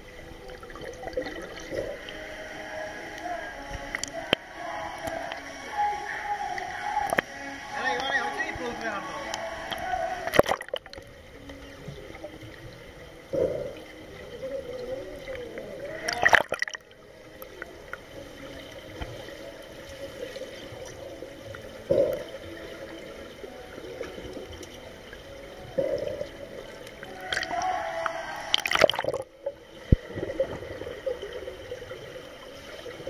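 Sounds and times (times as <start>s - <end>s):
underwater gurgling and bubbling: 0.0s - 33.0s
bubble bursts: 28.6s - 29.3s.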